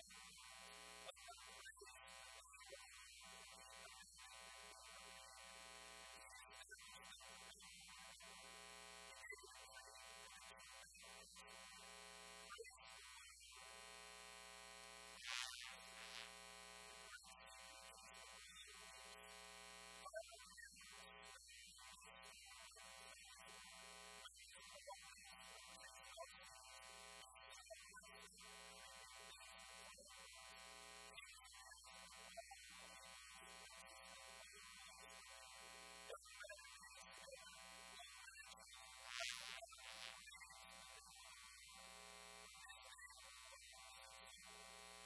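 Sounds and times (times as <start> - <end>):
faint electrical buzz: 3.4 - 20.2, 38.8 - 45.0.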